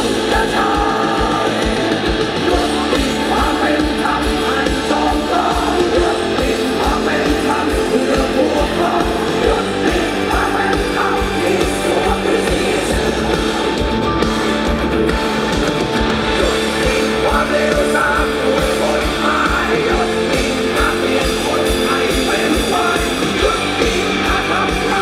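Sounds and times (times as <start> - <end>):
drums with kick beat: 0.0 - 25.0
electric guitars: 0.0 - 25.0
person singing: 0.0 - 25.0.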